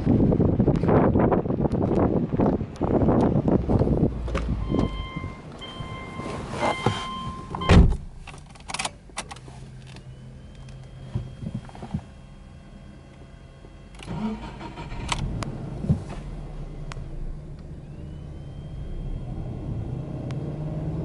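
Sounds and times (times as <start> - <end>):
low steady hum: 4.0 - 20.4
door-open warning chime: 4.6 - 7.9
car door shutting: 5.6 - 9.0, 14.8 - 16.4
ignition clicks: 13.1 - 18.8.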